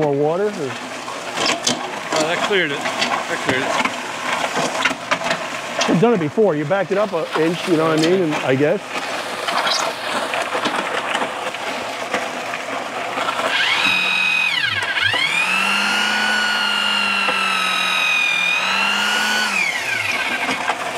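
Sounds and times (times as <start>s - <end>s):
concrete mixer running: 0.0s - 20.9s
cordless drill motor whine: 13.3s - 20.8s.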